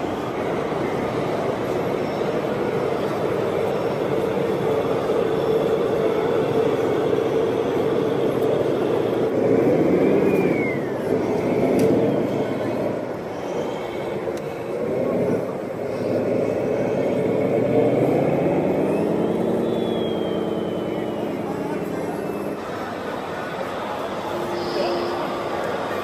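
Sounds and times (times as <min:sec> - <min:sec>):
engine running: 0:00.0 - 0:26.0
short falling whistle: 0:10.2 - 0:11.1, 0:18.9 - 0:21.5.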